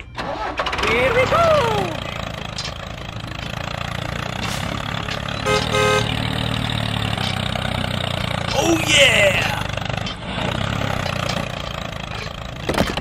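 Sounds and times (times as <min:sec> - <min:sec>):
tractor engine running: 0:00.0 - 0:13.0
horn toots: 0:05.4 - 0:06.2.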